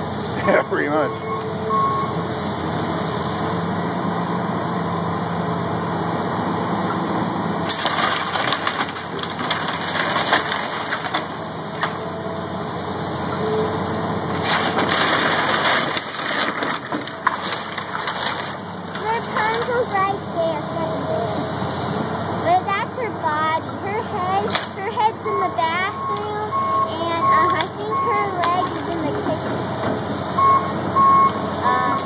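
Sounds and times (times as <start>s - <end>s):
excavator engine running: 0.0s - 32.0s
wood cracking and splintering: 7.6s - 12.1s, 14.3s - 19.9s.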